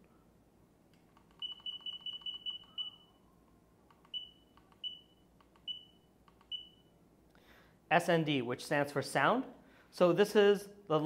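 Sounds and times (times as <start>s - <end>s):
short high beeps: 1.4s - 3.2s, 4.1s - 6.9s.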